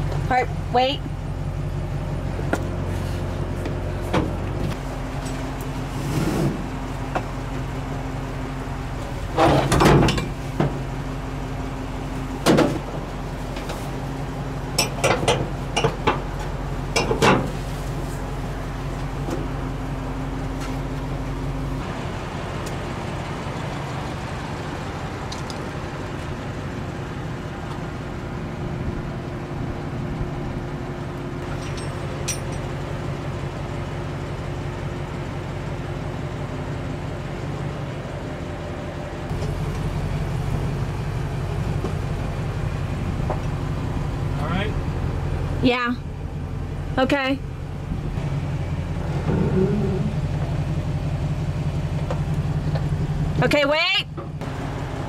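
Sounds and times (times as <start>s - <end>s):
truck engine idling: 0.0s - 55.0s
knocks and clanks: 9.4s - 10.8s, 12.4s - 13.0s, 14.8s - 17.6s, 31.4s - 32.7s.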